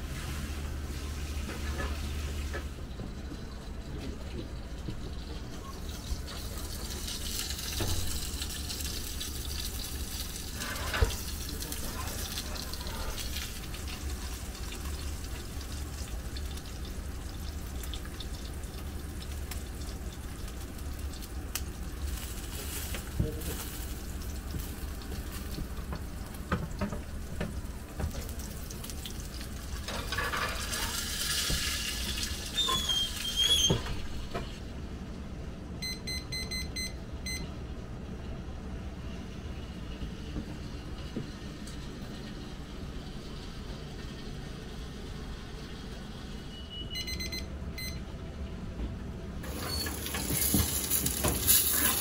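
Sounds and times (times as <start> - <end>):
kitchen hum: 0.0 - 52.0
kitchen timer beeping: 35.8 - 37.5, 46.6 - 48.0.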